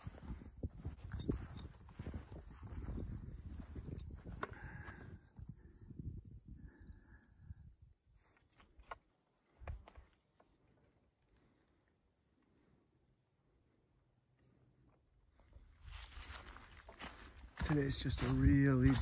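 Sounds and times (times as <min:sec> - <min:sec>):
insects trilling: 0:00.0 - 0:08.6.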